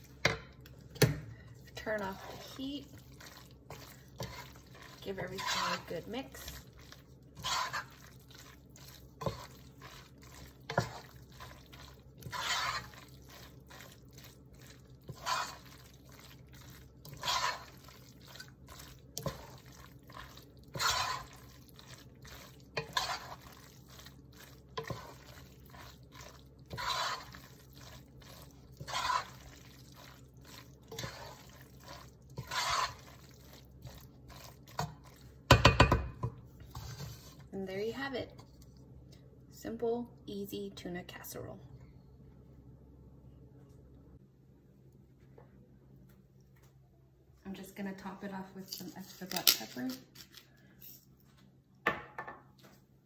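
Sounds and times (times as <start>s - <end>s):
spoon stirring thick sauce: 0.0s - 37.5s
spoon knocking against pot: 35.5s - 36.4s.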